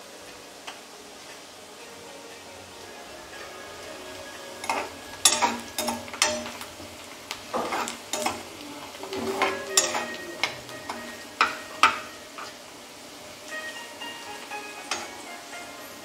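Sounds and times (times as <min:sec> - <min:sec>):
onions sizzling in oil: 0:00.0 - 0:16.0
steel spatula scraping a pan: 0:04.5 - 0:06.7, 0:07.5 - 0:08.4, 0:09.1 - 0:12.6.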